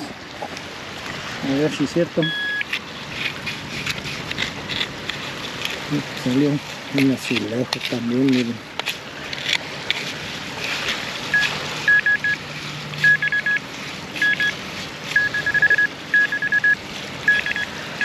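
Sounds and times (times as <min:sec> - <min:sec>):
metal detector beeping: 0:02.2 - 0:02.7, 0:11.3 - 0:12.4, 0:13.0 - 0:13.6, 0:14.2 - 0:18.0.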